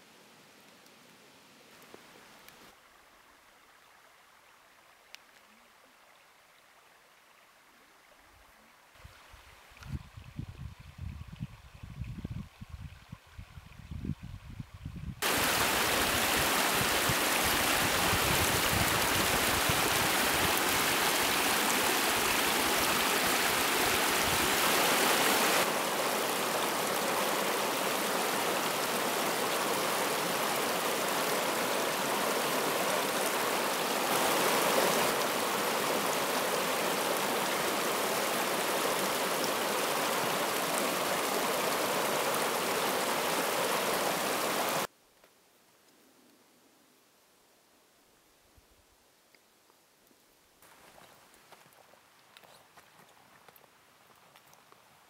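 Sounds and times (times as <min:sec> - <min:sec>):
stream rushing: 0:15.2 - 0:44.9.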